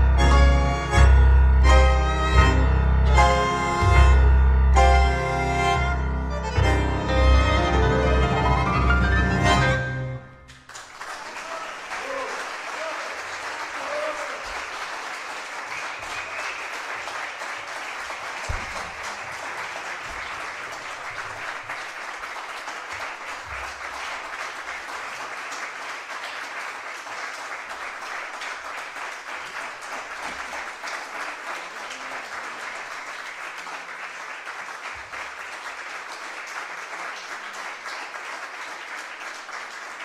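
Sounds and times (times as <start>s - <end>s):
audience applauding: 5.1s - 40.0s
low thump: 18.5s - 19.2s.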